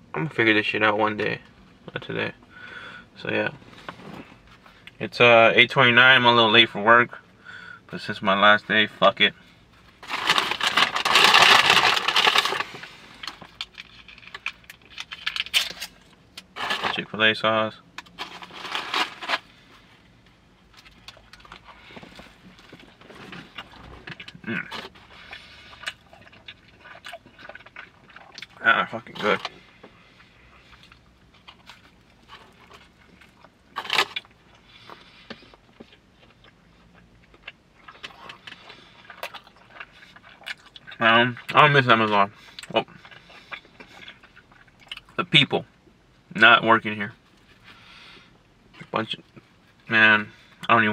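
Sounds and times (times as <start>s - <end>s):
paper packaging crinkling and rustling: 10.0s - 17.1s, 18.0s - 19.6s
person chewing food: 20.6s - 28.6s, 29.2s - 41.6s, 42.4s - 45.2s.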